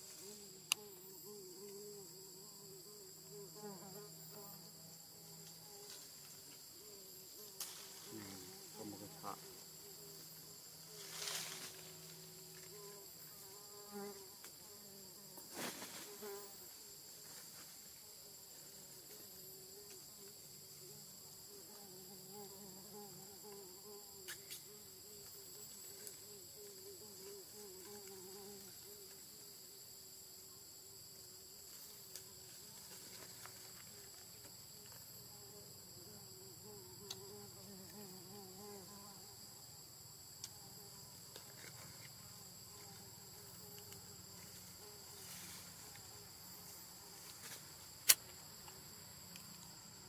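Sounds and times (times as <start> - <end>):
low wavering buzz: 0.0 - 14.9
high-pitched insect drone: 0.0 - 50.0.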